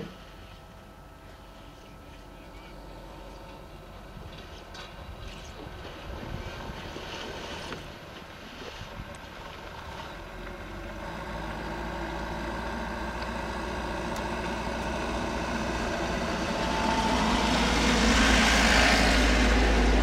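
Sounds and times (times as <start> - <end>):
motor engine running: 9.7 - 20.0.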